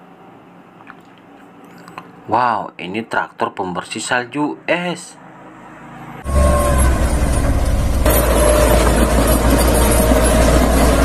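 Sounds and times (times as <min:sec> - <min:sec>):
snow rushing off plow blade: 0:06.2 - 0:11.0
tractor engine droning: 0:06.2 - 0:11.0.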